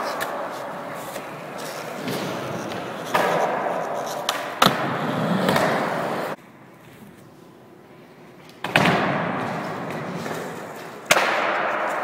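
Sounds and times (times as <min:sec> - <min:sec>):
skateboard wheels rolling on concrete: 0:00.0 - 0:07.2, 0:08.6 - 0:12.0.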